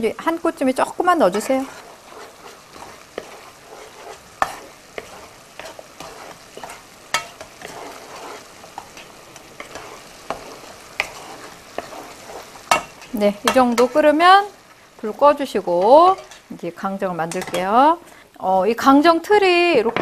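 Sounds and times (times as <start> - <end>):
syrup bubbling in a pan: 0.7 - 16.5
spatula tapping and scraping pan: 1.2 - 14.1, 15.7 - 16.5, 17.3 - 17.7.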